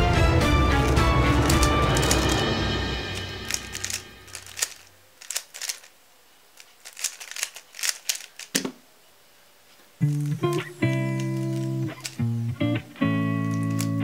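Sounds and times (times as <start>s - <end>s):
guitar music: 0.0s - 4.4s, 10.0s - 14.0s
puzzle cube plastic clicks: 1.4s - 2.4s, 3.4s - 8.7s, 10.0s - 12.5s, 13.3s - 14.0s.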